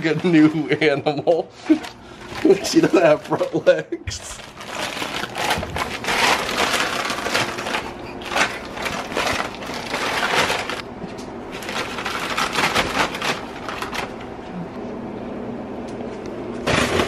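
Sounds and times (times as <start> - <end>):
paper bag crinkling: 1.5 - 10.8, 11.5 - 14.2.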